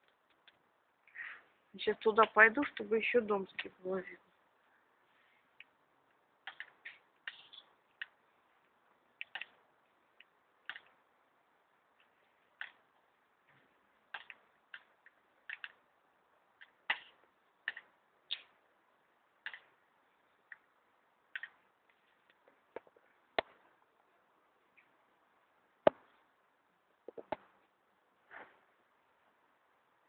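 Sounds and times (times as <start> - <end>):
faint hiss: 0.0 - 30.0
sharp clicks and taps: 6.4 - 8.2, 16.6 - 18.5, 21.3 - 21.6, 22.3 - 23.6, 27.1 - 27.5.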